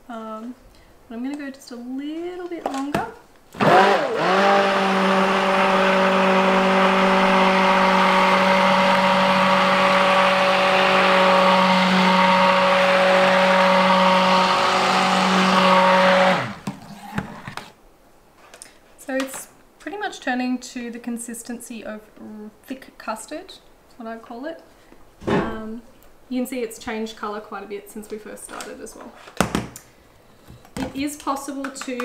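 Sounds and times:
immersion blender humming: 3.6 - 16.7.

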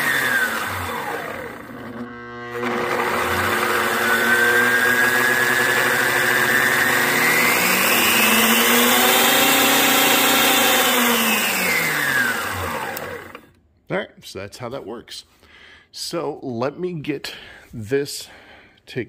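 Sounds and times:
band saw motor whining: 0.0 - 13.6.

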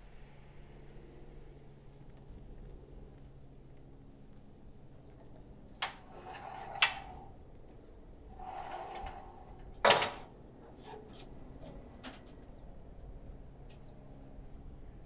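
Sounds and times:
latch clicking: 5.8 - 7.3
metal gate clanking shut: 5.8 - 7.3, 8.4 - 12.3
metal gate scraping: 5.8 - 7.4, 8.3 - 12.3.

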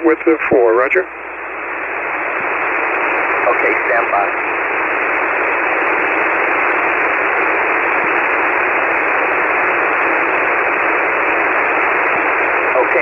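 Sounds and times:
radio receiver hiss: 0.0 - 13.0.

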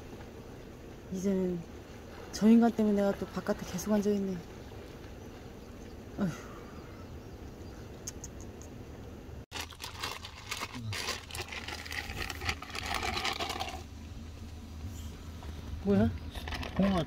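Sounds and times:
person sighing: 6.2 - 7.0
plastic bag crinkling: 9.5 - 13.9.

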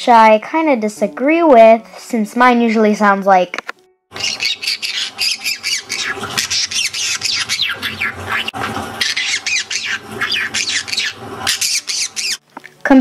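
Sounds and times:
parrot squawking: 4.1 - 12.4.

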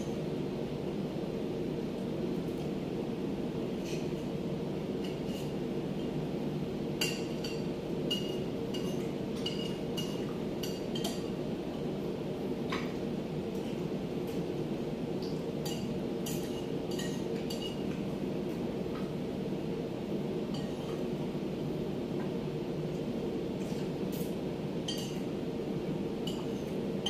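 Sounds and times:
low machinery hum: 0.0 - 27.0
cutlery clinking against plates: 7.0 - 11.3, 15.6 - 17.8, 24.9 - 25.2.

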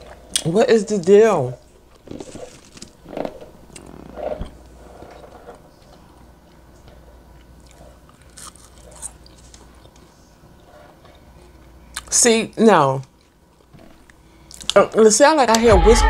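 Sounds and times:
person chewing: 1.9 - 6.6, 7.3 - 10.1, 11.1 - 12.1
crisp bites: 2.0 - 4.1.

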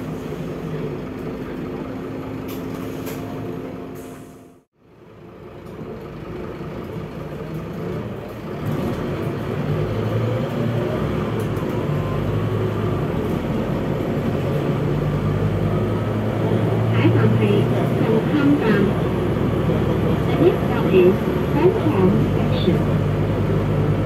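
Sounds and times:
bus engine inside cabin: 0.0 - 24.0
road rumble: 0.0 - 24.0.

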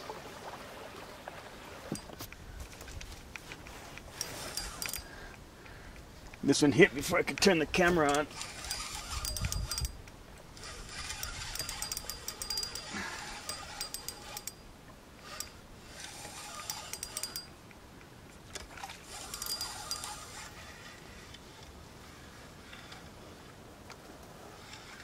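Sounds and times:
fishing reel gears clicking and whirring: 4.0 - 5.4, 8.0 - 17.6, 18.5 - 21.6, 24.5 - 25.0.

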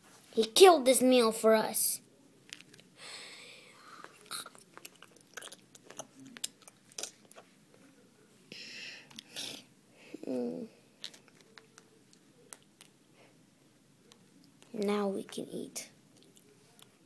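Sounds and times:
mouth-made chewing noises: 3.9 - 7.8, 16.1 - 17.0.

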